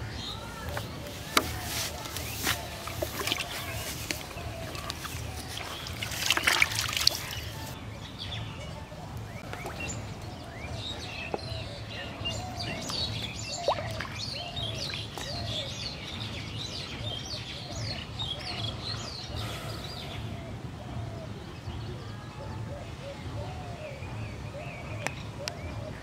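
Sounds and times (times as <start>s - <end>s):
birds chirping: 0.0s - 26.0s
water splashing in a bucket: 0.8s - 7.8s, 12.6s - 15.4s.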